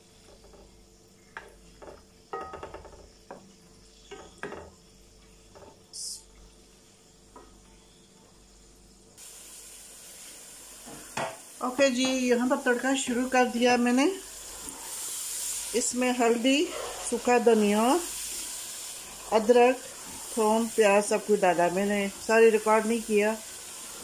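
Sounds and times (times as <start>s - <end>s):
food sizzling in oil: 8.5s - 24.0s.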